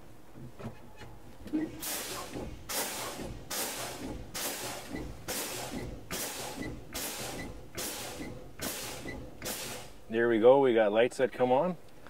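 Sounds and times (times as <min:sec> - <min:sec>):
air brake hiss: 0:01.7 - 0:10.0.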